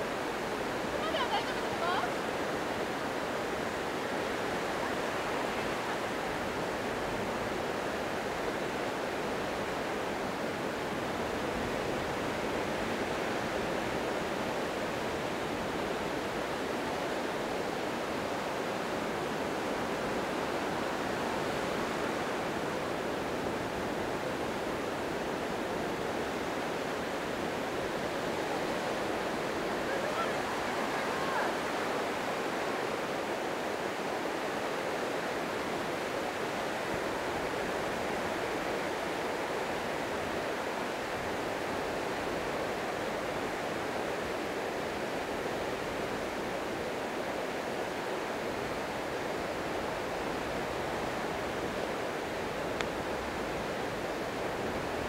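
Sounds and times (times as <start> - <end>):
surf breaking on sandy beach: 18.7 - 34.6.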